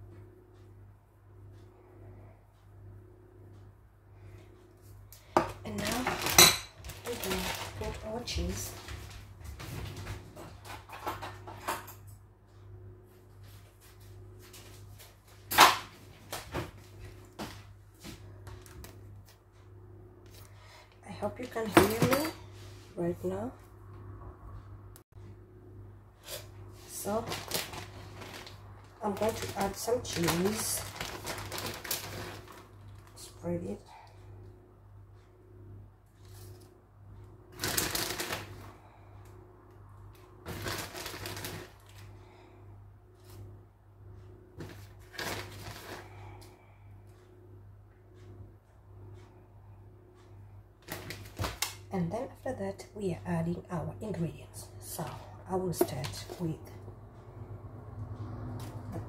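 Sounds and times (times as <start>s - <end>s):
steady low hum: 0.0s - 59.0s
packet crinkling: 5.7s - 8.1s, 27.2s - 33.0s, 37.6s - 38.6s, 40.5s - 41.9s.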